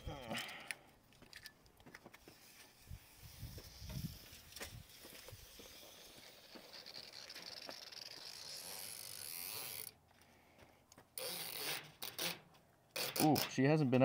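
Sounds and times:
tape measure blade rasping: 2.1s - 10.0s, 11.2s - 13.6s.

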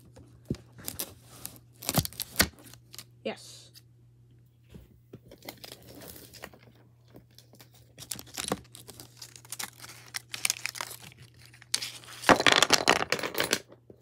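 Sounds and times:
plastic wrap crinkling and tearing: 0.8s - 3.1s, 7.5s - 12.3s.

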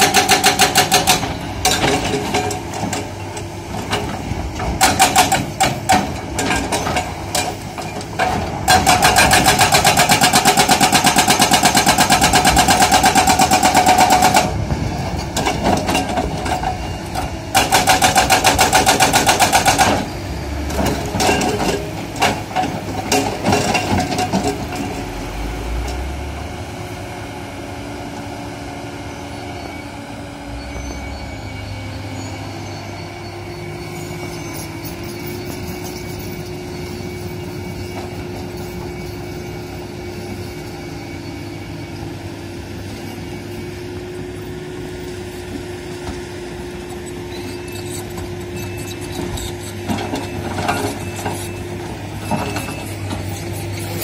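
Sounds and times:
hydraulic rock breaker hammering: 0.0s - 3.2s, 3.8s - 20.1s
diesel engine running: 0.0s - 54.0s.

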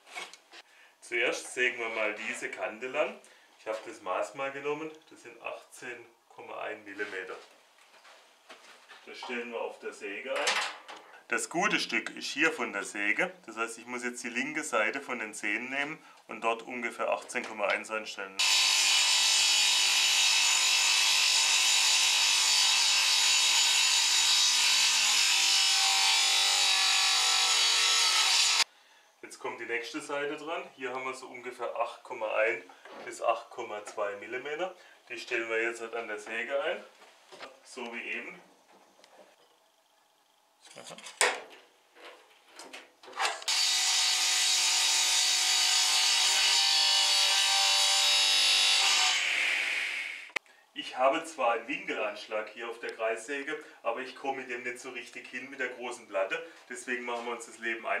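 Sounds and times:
table saw cutting board: 18.4s - 28.6s, 43.3s - 50.4s.

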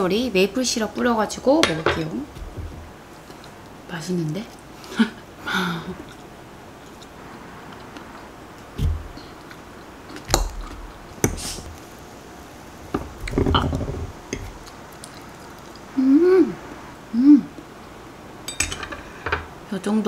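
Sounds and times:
person humming mm: 15.9s - 17.6s.

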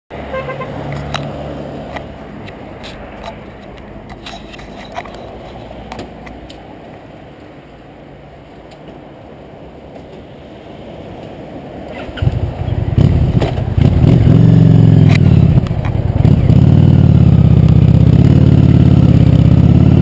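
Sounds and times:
motorcycle engine running: 12.2s - 20.0s.

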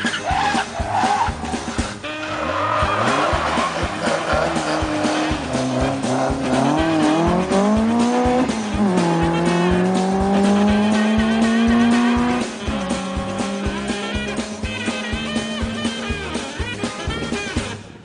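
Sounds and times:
rally car engine revving: 0.0s - 18.0s
music with drum beat: 2.9s - 18.0s.

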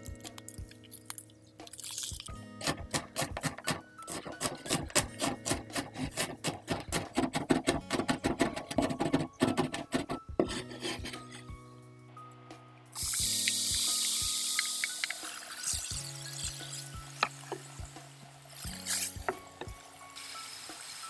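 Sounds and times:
cleaver chopping on wooden board: 2.6s - 10.2s.

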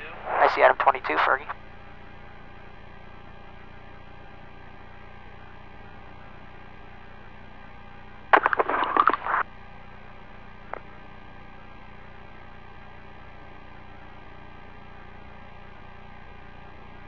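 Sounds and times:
radio intercom hiss and hum: 0.0s - 1.6s, 8.3s - 9.4s
crackling burst: 0.1s - 1.5s, 8.3s - 9.4s.

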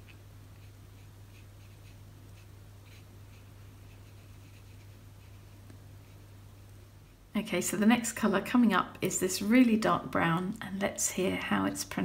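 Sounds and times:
paintbrush strokes on paper: 0.0s - 7.3s
steady low hum: 0.0s - 12.0s.

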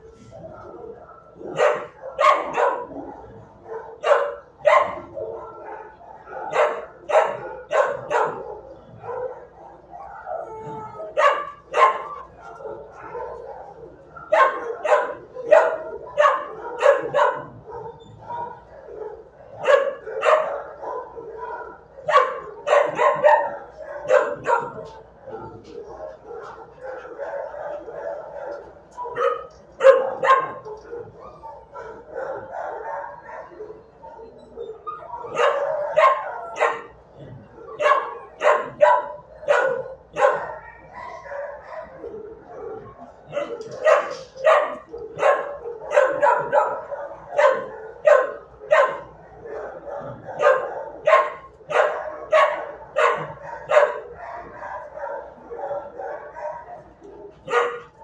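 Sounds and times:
dogs barking: 0.0s - 58.0s.

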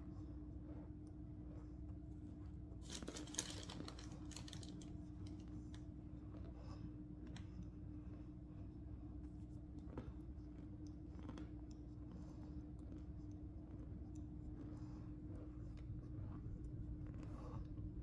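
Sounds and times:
cornstarch crunching and squeaking: 2.8s - 5.4s
plastic bag crinkling: 2.8s - 5.4s.

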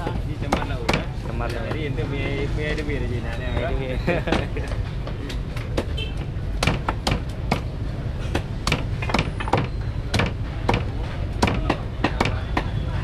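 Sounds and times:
cleaver chopping on wooden block: 0.0s - 2.4s, 5.1s - 12.8s.

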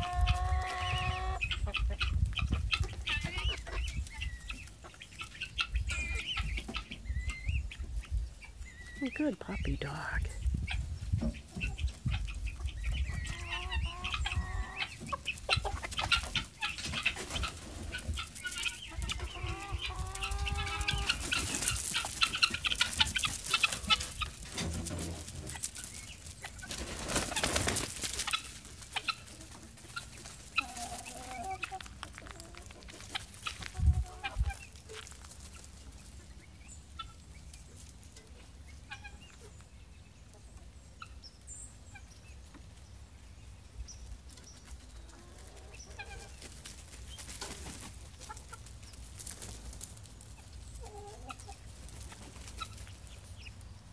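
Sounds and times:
chickens clucking: 0.0s - 53.9s
drawn-out chicken calls: 0.0s - 53.9s
rustling: 20.2s - 33.8s.

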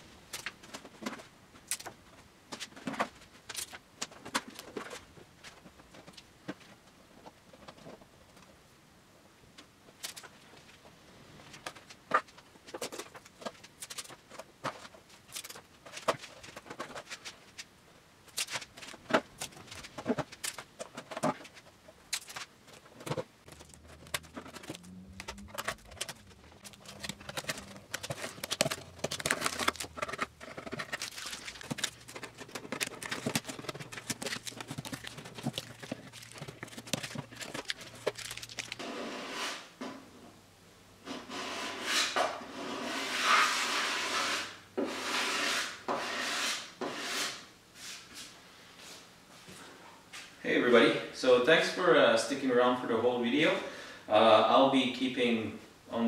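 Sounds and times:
masking tape pulled and torn: 30.8s - 38.9s.

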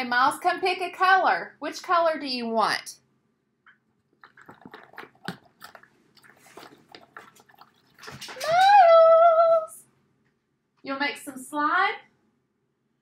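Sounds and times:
skewer stirring glue: 3.7s - 8.6s
light clicks and wet squishes: 3.7s - 8.7s.

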